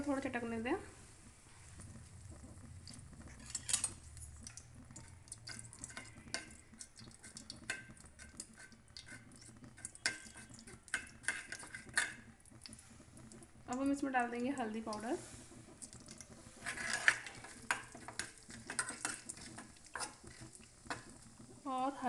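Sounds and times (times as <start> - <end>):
seeds crackling in hot oil: 0.0 - 22.0
metal ladle scraping pan: 3.2 - 4.1, 5.5 - 13.1, 14.9 - 21.2.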